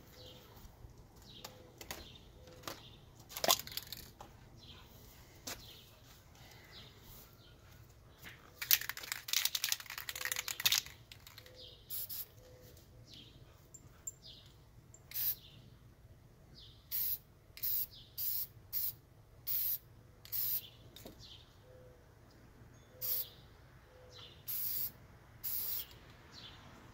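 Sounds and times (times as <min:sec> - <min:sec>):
spray can ball rattling: 0:03.3 - 0:04.2, 0:08.6 - 0:12.3, 0:15.1 - 0:15.4, 0:16.9 - 0:20.7, 0:23.0 - 0:23.2, 0:24.5 - 0:26.0
spray can hissing bursts: 0:11.9 - 0:12.4, 0:15.1 - 0:15.4, 0:16.9 - 0:20.7, 0:23.0 - 0:23.3, 0:24.5 - 0:26.0.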